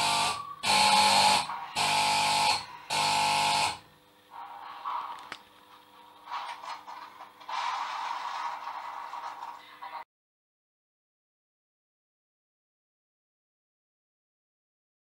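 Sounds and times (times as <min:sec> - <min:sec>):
alarm buzzer blasts: 0:00.0 - 0:03.9.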